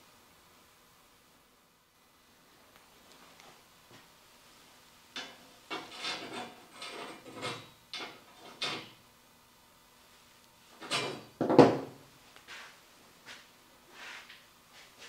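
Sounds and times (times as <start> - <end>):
steel scraping on wood: 5.2 - 9.0
knocks on wooden table: 11.4 - 11.9.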